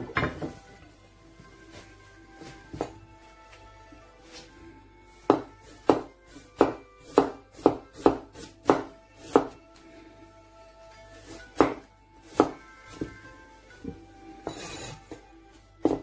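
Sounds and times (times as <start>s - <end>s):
quiet background music: 0.0s - 16.0s
knife chopping on board: 2.7s - 3.0s, 5.2s - 9.6s, 11.5s - 13.2s, 15.8s - 16.0s.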